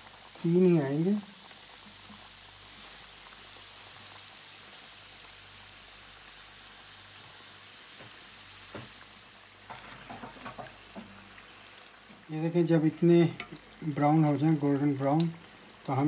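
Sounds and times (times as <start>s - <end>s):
oil bubbling and crackling: 0.0s - 16.0s.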